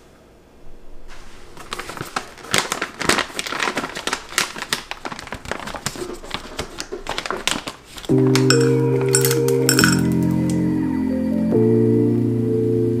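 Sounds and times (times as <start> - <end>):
coffee bag crinkling: 1.1 - 10.6.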